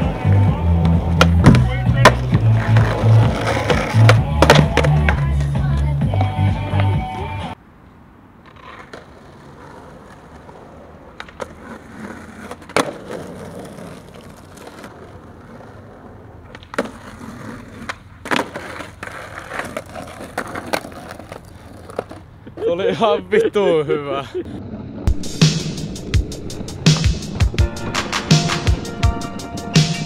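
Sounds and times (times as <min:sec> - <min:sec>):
skateboard clacking on ground: 0:00.0 - 0:07.1, 0:08.4 - 0:22.6
skateboard wheels rolling on asphalt: 0:00.0 - 0:30.0.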